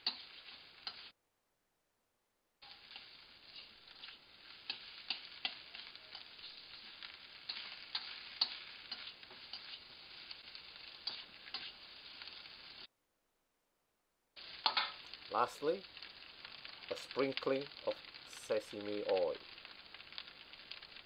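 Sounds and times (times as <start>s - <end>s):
metal spatula scraping a wok: 0.0s - 1.1s, 2.6s - 12.9s
rice sizzling in a wok: 0.0s - 1.2s, 2.6s - 12.9s, 14.4s - 21.0s.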